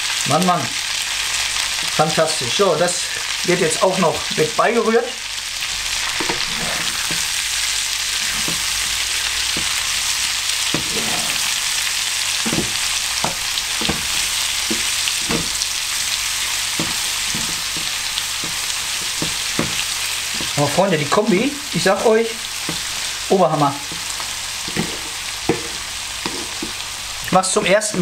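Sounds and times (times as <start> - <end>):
meat and vegetables sizzling in a pan: 0.0 - 28.0
spatula scraping and knocking a pan: 6.0 - 23.2, 23.8 - 27.0.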